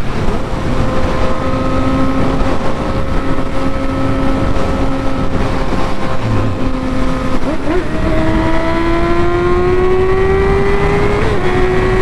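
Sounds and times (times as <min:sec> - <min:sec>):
motorcycle engine cruising: 0:00.0 - 0:12.0
wind rush on microphone: 0:00.0 - 0:12.0.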